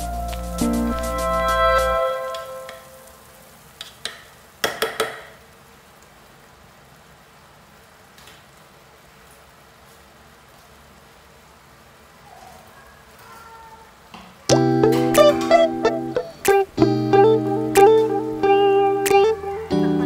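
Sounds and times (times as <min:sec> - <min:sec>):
background music: 0:00.0 - 0:03.1, 0:14.5 - 0:20.0.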